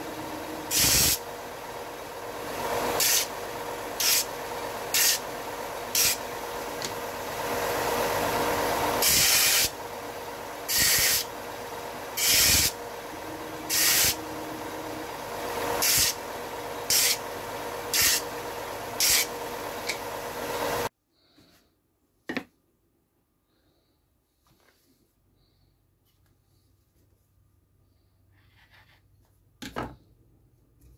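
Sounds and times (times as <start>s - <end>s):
belt sander running: 0.0s - 20.9s.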